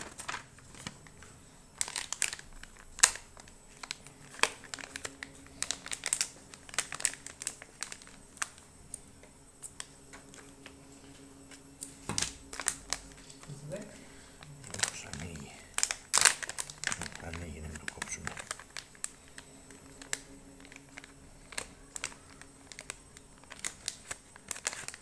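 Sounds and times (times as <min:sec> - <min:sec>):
paper and plastic crinkling: 0:00.0 - 0:25.0.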